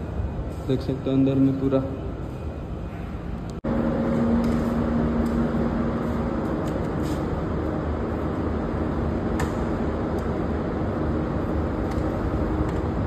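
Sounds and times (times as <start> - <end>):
ventilation and equipment hum: 0.0 - 13.0.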